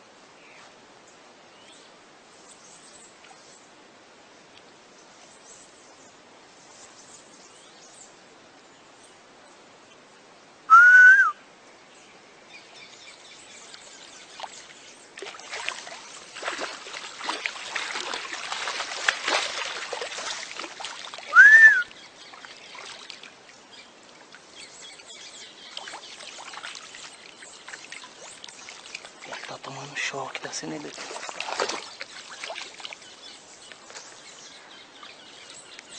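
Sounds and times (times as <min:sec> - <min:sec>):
whistle-like calls: 0:10.7 - 0:11.4, 0:21.3 - 0:21.9
caiman thrashing in water: 0:14.3 - 0:21.4, 0:25.6 - 0:33.2.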